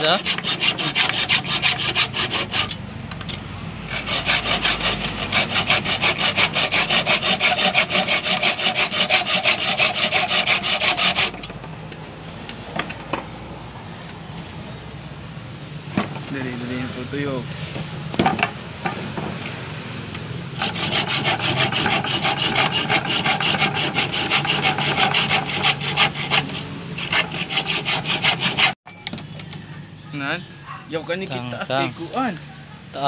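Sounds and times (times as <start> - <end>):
hacksaw cutting metal: 0.0 - 11.6, 20.6 - 28.8.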